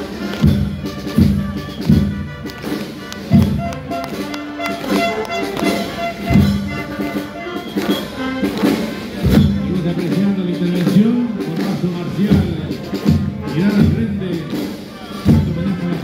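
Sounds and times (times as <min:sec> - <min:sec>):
marching band playing: 0:00.0 - 0:16.0
bass drum beats: 0:03.3 - 0:07.4, 0:09.1 - 0:14.7.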